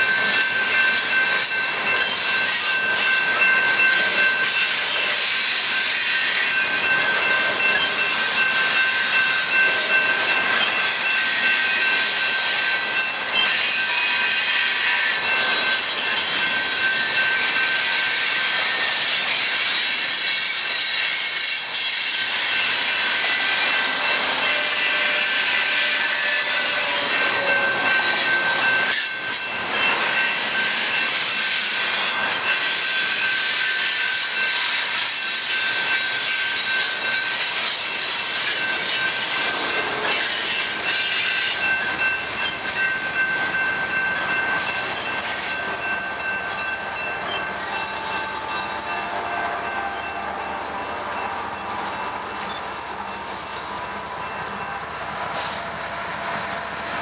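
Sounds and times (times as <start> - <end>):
train wheels rushing on rail: 0.0 - 57.0
high squealing tones: 35.8 - 57.0.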